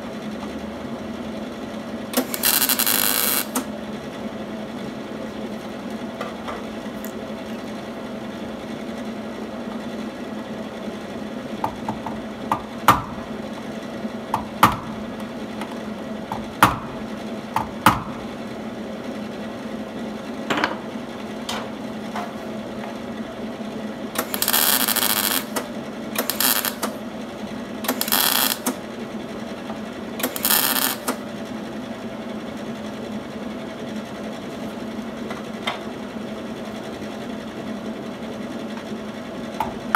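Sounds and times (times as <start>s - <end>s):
welding crackle: 2.2s - 3.7s, 24.2s - 25.6s, 26.2s - 27.0s, 27.9s - 28.8s, 30.2s - 31.2s.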